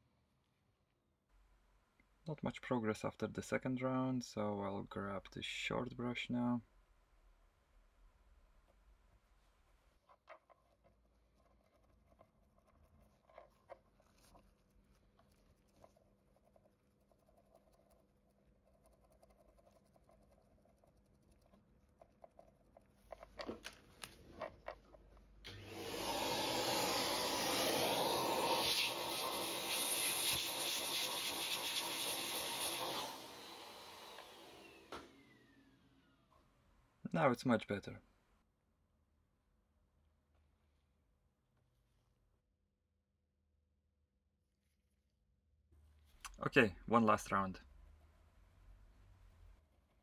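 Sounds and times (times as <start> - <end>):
brush bristles scrubbing: 9.5 - 23.4
small vacuum running: 25.4 - 36.3.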